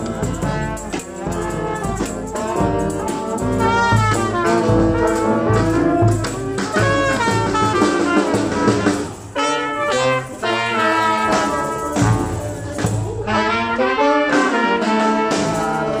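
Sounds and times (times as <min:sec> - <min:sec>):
brass band music: 0:00.0 - 0:16.0.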